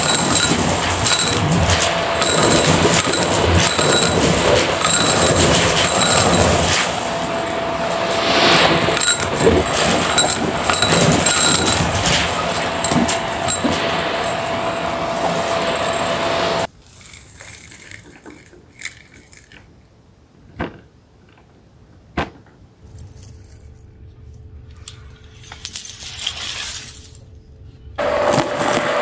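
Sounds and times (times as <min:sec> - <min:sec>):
debris rattling onto carpet: 0:00.0 - 0:07.7, 0:08.5 - 0:19.7
stick vacuum running: 0:00.0 - 0:16.7, 0:28.0 - 0:29.0.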